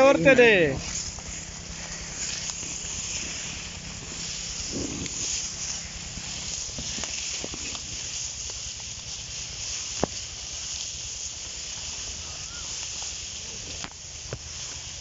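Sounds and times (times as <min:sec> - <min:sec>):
leaves and stalks rustling: 0:00.0 - 0:15.0
steady hiss: 0:00.0 - 0:15.0.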